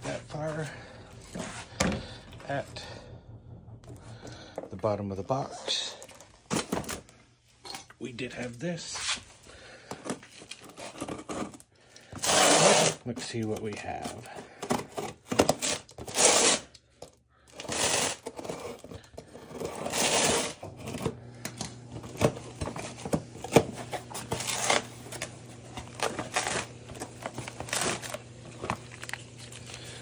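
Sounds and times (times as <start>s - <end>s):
low steady hum: 0.0s - 30.0s
plastic bags rustling: 21.9s - 30.0s.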